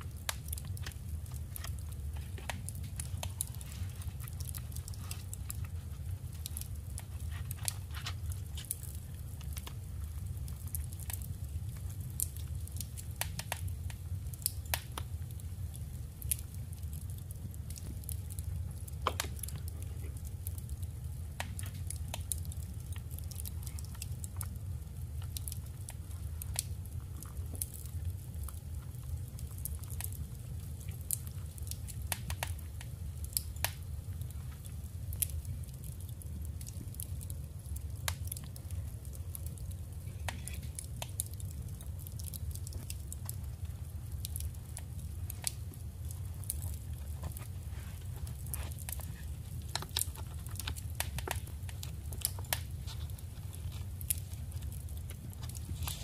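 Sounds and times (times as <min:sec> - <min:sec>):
steady low hum: 0:00.0 - 0:56.0
paper crinkling and rustling: 0:46.6 - 0:56.0.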